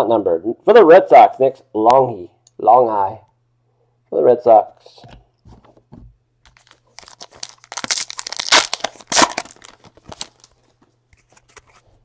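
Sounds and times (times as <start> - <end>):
wrapper being torn open: 6.5 - 10.6
wrapper crinkling: 6.5 - 11.8.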